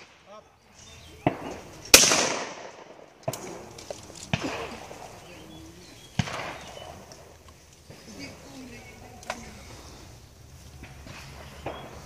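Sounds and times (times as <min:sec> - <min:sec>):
shotgun shots: 0:01.2 - 0:03.7, 0:04.3 - 0:05.0, 0:06.1 - 0:07.1.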